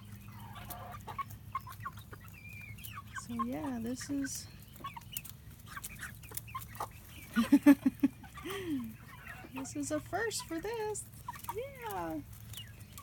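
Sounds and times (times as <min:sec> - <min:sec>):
chicks peeping: 0:00.0 - 0:13.0
hens clucking: 0:00.0 - 0:13.0.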